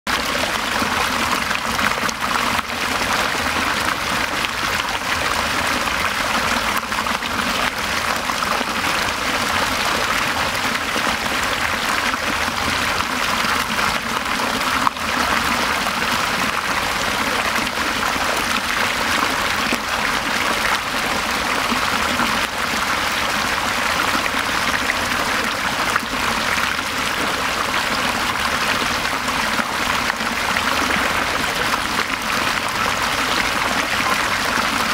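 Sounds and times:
stream water pouring over rocks: 0:00.1 - 0:34.9.

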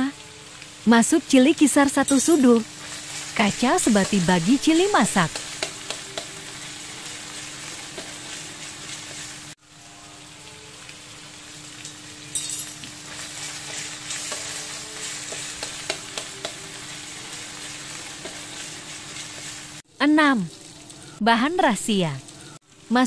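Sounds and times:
food sizzling in a wok: 0:00.0 - 0:23.0.

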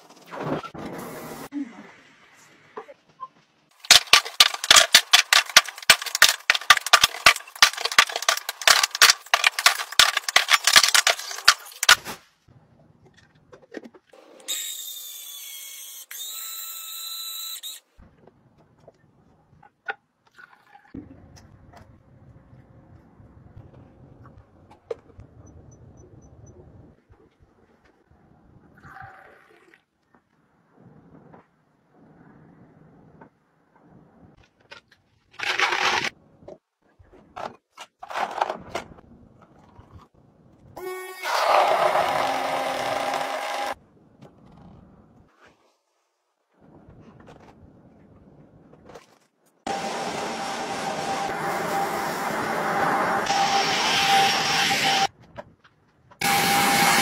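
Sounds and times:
ice and vegetables clattering into jar: 0:03.9 - 0:12.0
citrus juicer motor whining: 0:40.8 - 0:43.8, 0:49.7 - 0:55.1, 0:56.2 - 0:57.0.

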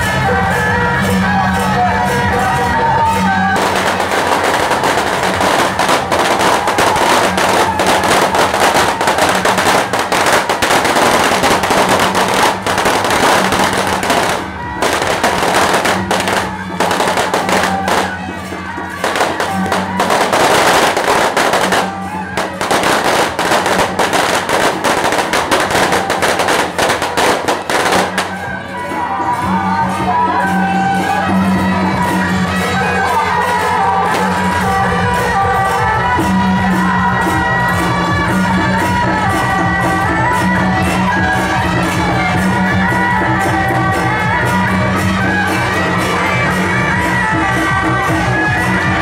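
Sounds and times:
firecrackers crackling: 0:03.2 - 0:28.9, 0:33.6 - 0:35.8.

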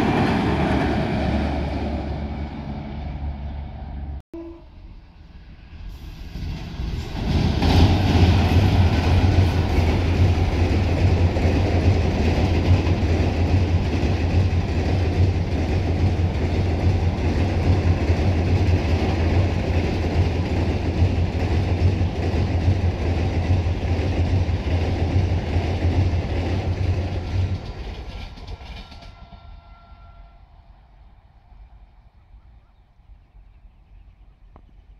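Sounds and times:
train rumbling over bridge: 0:00.0 - 0:34.0
train wheel clatter: 0:06.3 - 0:30.1.

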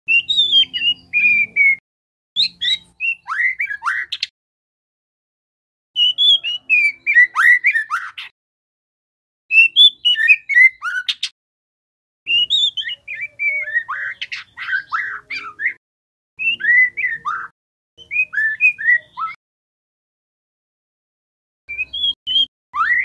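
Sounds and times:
bird singing whistled notes: 0:00.1 - 0:01.8, 0:02.4 - 0:04.3, 0:06.0 - 0:08.3, 0:09.5 - 0:11.3, 0:12.3 - 0:15.8, 0:16.4 - 0:19.4, 0:21.7 - 0:23.0.

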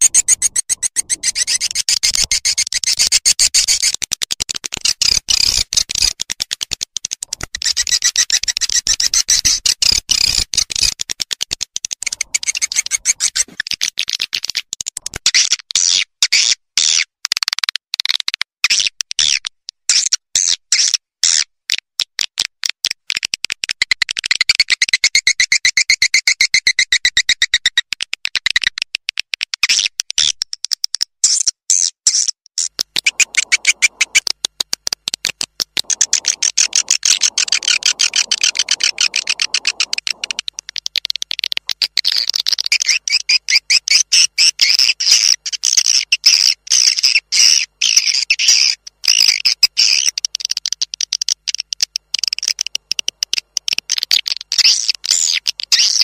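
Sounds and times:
birds chattering and twittering: 0:00.0 - 0:02.6, 0:12.1 - 0:13.5, 0:33.0 - 0:34.2, 0:35.8 - 0:40.6.

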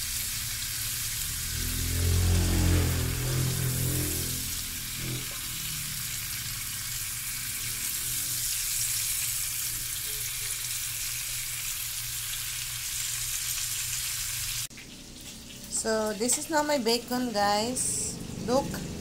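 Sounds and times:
bacon sizzling in a frying pan: 0:00.0 - 0:01.4, 0:04.1 - 0:16.7.

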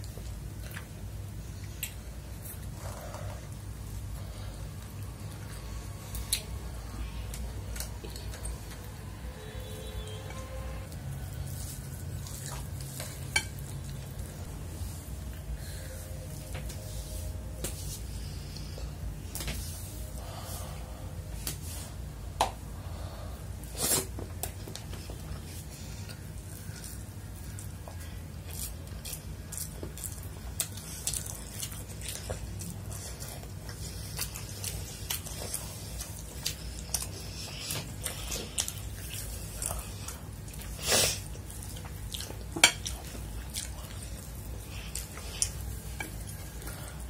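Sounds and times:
faint low hum: 0:00.0 - 0:47.0
chewing: 0:07.3 - 0:09.0, 0:09.9 - 0:14.5, 0:24.7 - 0:47.0.

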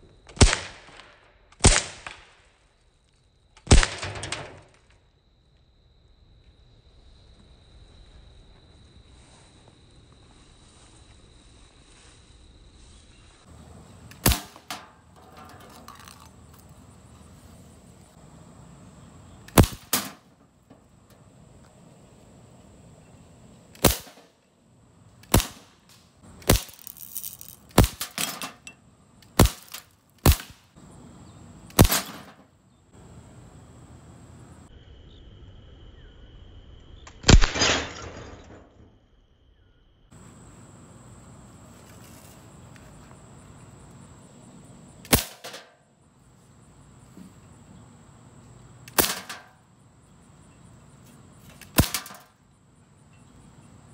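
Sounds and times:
bb gun firing: 0:03.7 - 0:04.4, 0:14.1 - 0:14.9, 0:19.5 - 0:20.2, 0:23.8 - 0:24.2, 0:25.3 - 0:25.7, 0:26.4 - 0:28.4, 0:29.4 - 0:30.6, 0:31.8 - 0:32.4, 0:37.3 - 0:37.8, 0:45.1 - 0:45.7, 0:48.9 - 0:49.5, 0:51.7 - 0:52.3
pellets hitting glass and plastic bottles: 0:26.5 - 0:28.6.

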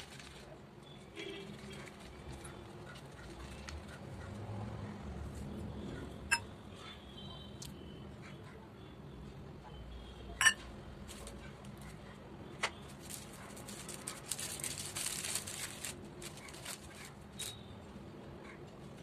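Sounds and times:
plastic packet crinkling: 0:00.0 - 0:00.5, 0:12.9 - 0:17.6.

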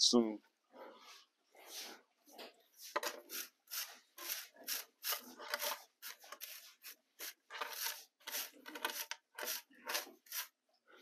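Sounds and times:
shovel and broom scraping concrete: 0:02.8 - 0:10.6.

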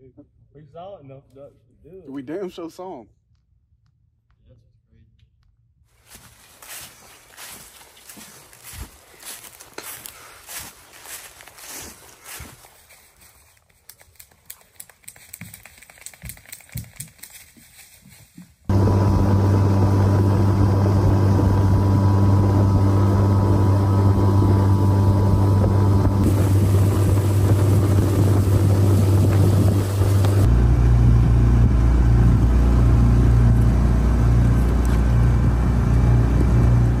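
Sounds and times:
wind on microphone: 0:18.7 - 0:33.6
boat motor running: 0:18.7 - 0:37.0
water rushing along hull: 0:18.7 - 0:37.0.

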